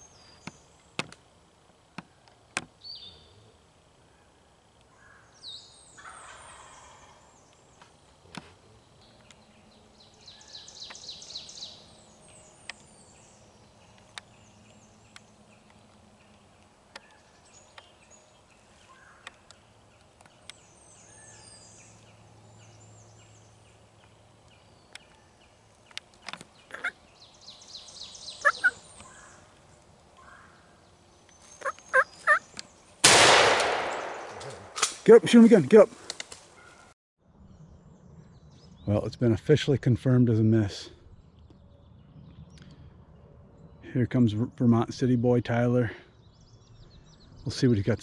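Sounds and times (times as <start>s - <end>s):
distant turkey gobbling: 6.0s - 7.4s, 26.7s - 27.1s, 28.2s - 29.5s, 31.6s - 32.5s
faint sharp clicks: 36.0s - 36.4s.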